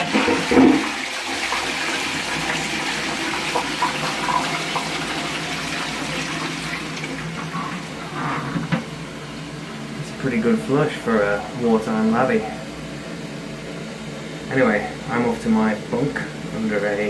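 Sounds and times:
toilet flushing: 0.0 - 12.9.

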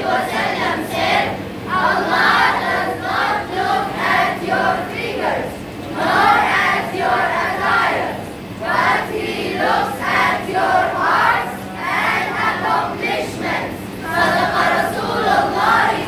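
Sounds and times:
children chanting in unison: 0.0 - 16.0
steady low hum: 0.0 - 16.0.

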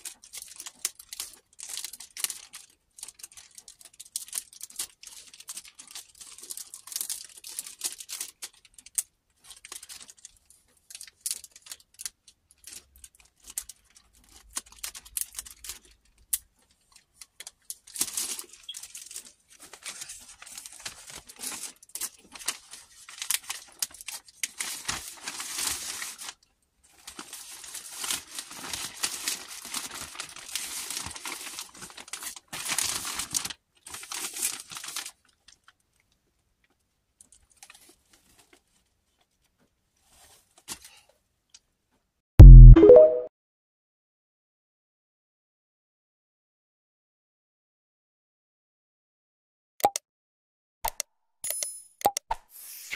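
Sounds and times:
plastic packaging crinkling: 0.0 - 16.0, 16.7 - 35.8.

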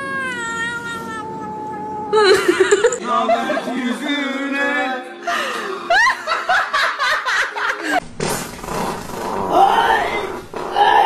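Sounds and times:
laughter: 2.2 - 4.2, 5.6 - 8.0.

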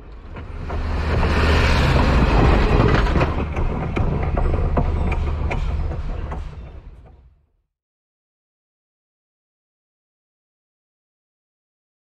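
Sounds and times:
train rumbling past: 0.0 - 7.4
train wheels clacking: 0.1 - 7.4.

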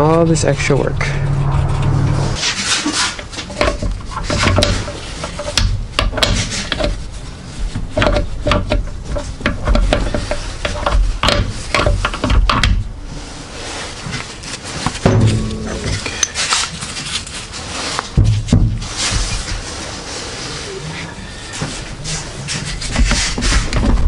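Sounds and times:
metallic clicks and knocks: 3.4 - 7.0, 7.7 - 12.8.

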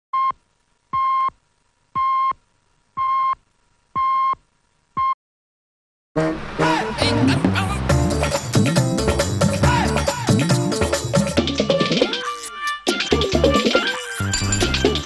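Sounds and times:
music: 6.2 - 15.0.

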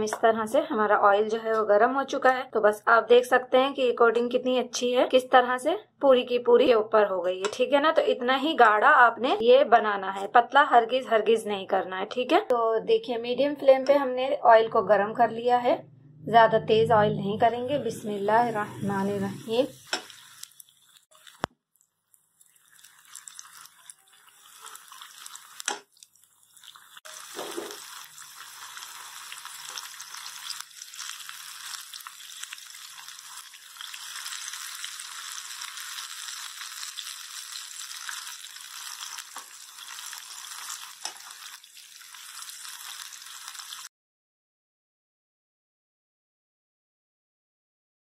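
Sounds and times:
fish frying in oil: 19.4 - 43.9.

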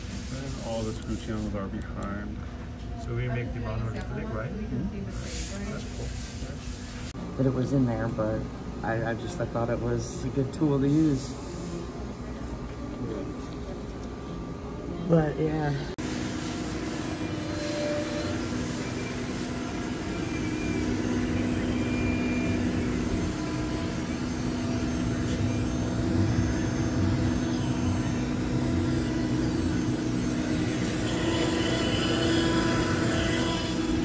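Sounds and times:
milling machine whirring: 16.0 - 34.0.

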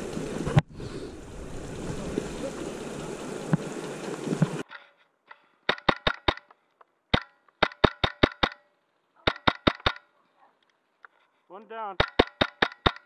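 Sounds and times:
airsoft rifle firing bursts: 5.7 - 6.5, 7.1 - 8.6, 9.2 - 10.0, 12.0 - 13.0.

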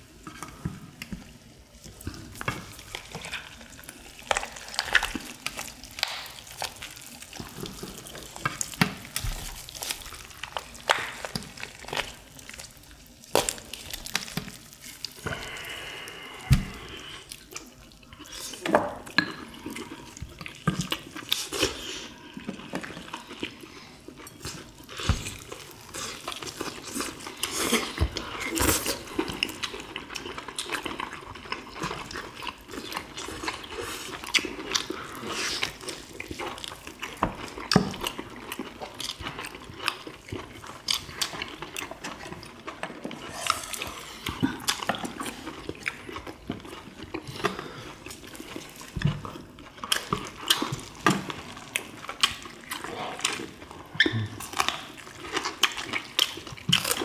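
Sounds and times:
chewing and lip-smacking: 0.2 - 57.0
wet tearing of boiled chicken: 1.7 - 18.7.

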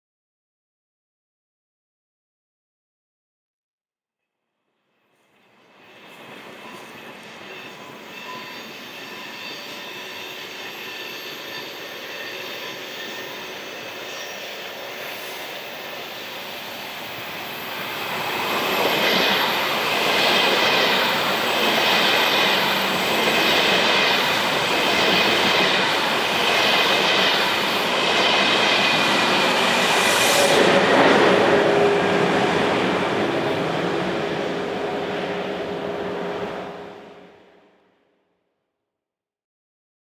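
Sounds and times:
electric train rumbling past: 5.1 - 37.8
wheel squeal: 6.6 - 15.7.

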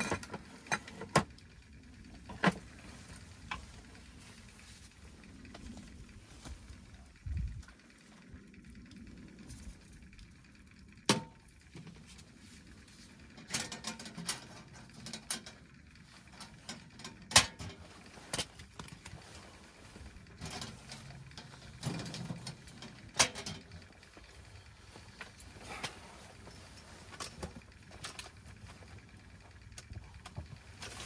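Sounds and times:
firewood handled: 11.1 - 31.0.

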